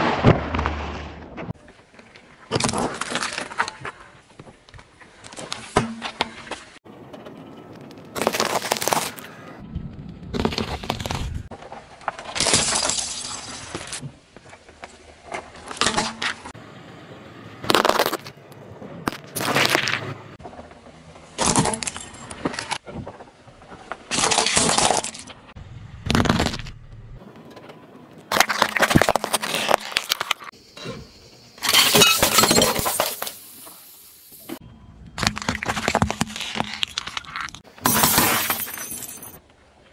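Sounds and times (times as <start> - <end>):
plastic and plate breaking on gravel: 2.4 - 4.0, 10.4 - 14.0, 19.1 - 20.0, 21.3 - 25.4, 28.3 - 30.5, 31.6 - 33.5, 35.2 - 39.4
tyre crushing hard candies: 28.3 - 30.5, 35.2 - 38.8.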